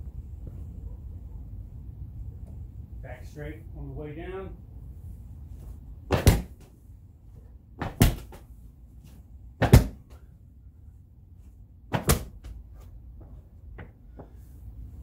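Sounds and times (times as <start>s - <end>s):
ball slammed on concrete: 6.1s - 6.8s, 7.8s - 8.6s, 9.6s - 10.2s, 11.9s - 12.6s.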